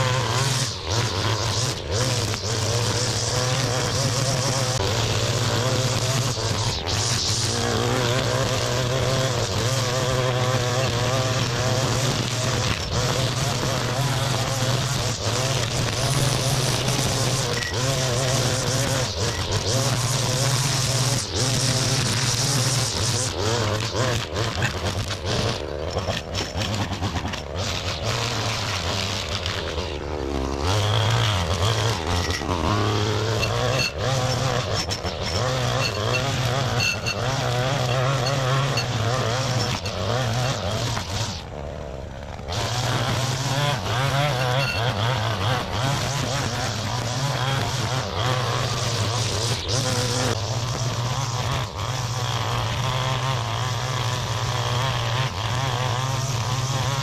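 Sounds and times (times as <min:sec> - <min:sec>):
string trimmer engine revving: 0:00.0 - 0:57.0.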